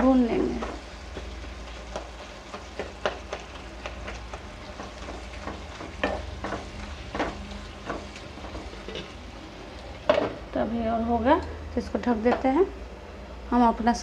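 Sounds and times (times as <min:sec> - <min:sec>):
low sizzle: 0:00.0 - 0:14.0
spatula scraping a pan: 0:00.6 - 0:09.3.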